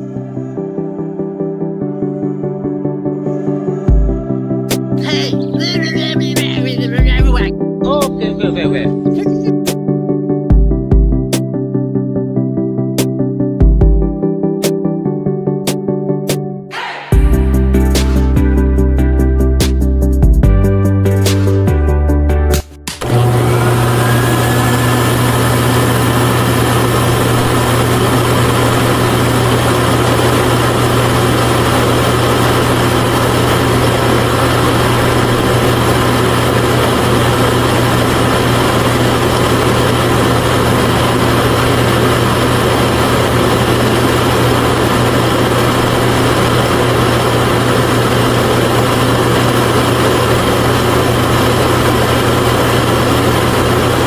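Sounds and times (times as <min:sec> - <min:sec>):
faint motor whine: 0:23.0 - 0:54.0
small motor humming: 0:23.0 - 0:54.0.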